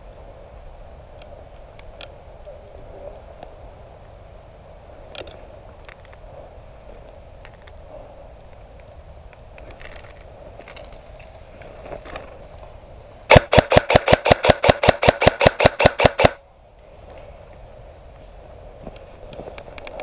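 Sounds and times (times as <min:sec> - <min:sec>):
airsoft rifle firing: 0:13.3 - 0:16.4.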